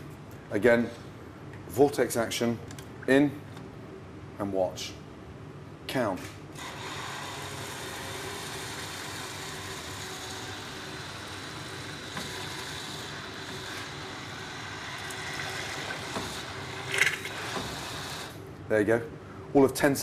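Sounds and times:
hand blender running: 6.6s - 18.4s.

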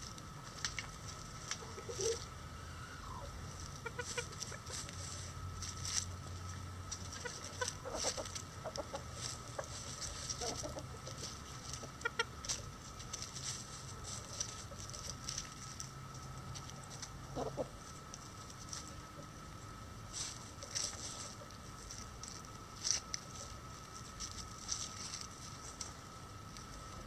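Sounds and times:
chickens clucking softly: 1.4s - 5.2s, 6.9s - 15.7s, 16.8s - 19.6s.

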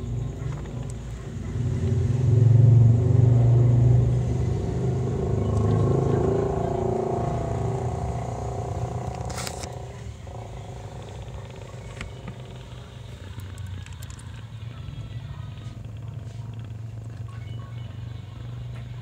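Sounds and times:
cat purring: 4.5s - 18.7s.

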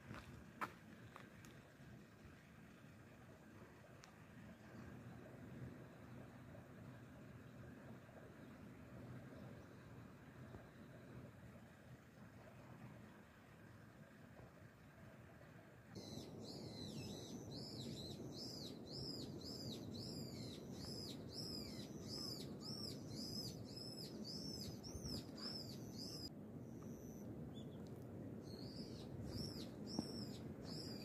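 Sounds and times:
low outdoor background noise: 0.0s - 31.0s
small bird calling: 16.0s - 27.8s, 28.5s - 31.0s.

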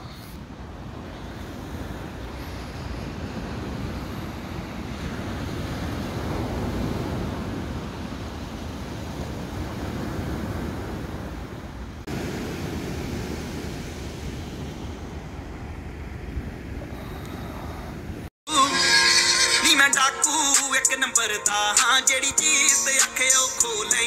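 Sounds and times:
surf breaking on beach: 0.0s - 17.2s
wind rumbling on microphone: 0.0s - 18.3s.

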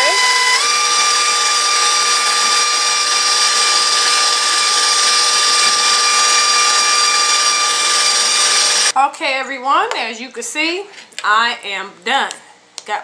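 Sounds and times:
stand mixer whisking: 0.0s - 8.9s.

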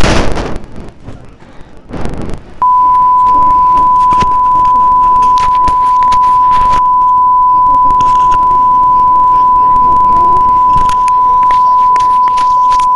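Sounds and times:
bursts of noise: 0.0s - 12.9s
high-pitched electronic beep tone: 2.6s - 12.9s.

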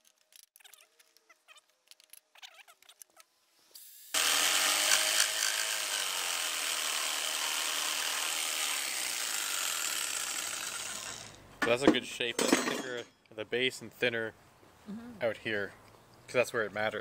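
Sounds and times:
electric jigsaw cutting wood: 4.1s - 11.4s.

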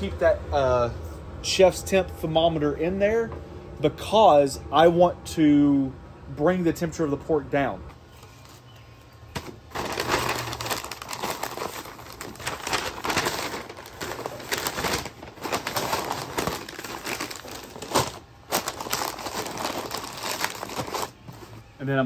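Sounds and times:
paper and foil rustling: 9.4s - 21.6s.

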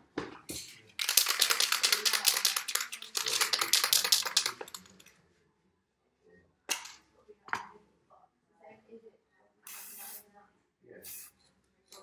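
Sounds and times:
spray can ball rattling: 1.0s - 5.0s.

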